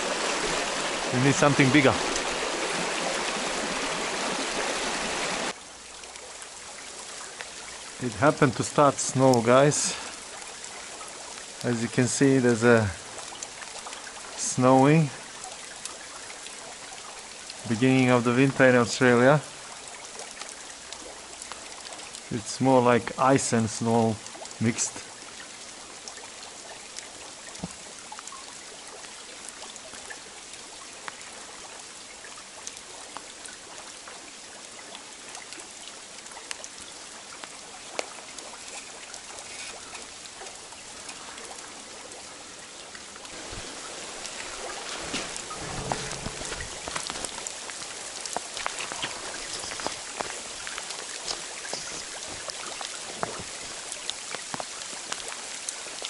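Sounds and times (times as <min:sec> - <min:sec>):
creek flowing: 0:00.0 - 0:56.0
sleet ticking on leaves: 0:43.3 - 0:56.0.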